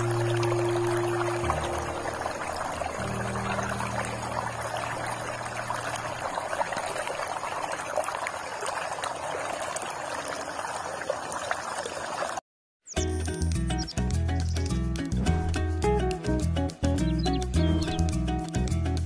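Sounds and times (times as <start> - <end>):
background music: 0.0 - 6.1, 13.0 - 19.0
muddy water rushing: 0.0 - 12.4.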